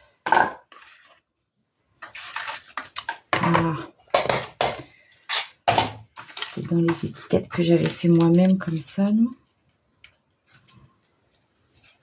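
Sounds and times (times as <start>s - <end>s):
paper rustling: 10.4s - 12.0s.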